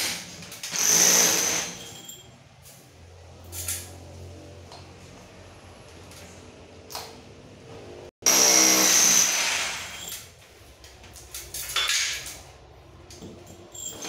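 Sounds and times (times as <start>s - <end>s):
rotary hammer drilling: 0.1s - 2.0s, 8.2s - 10.2s.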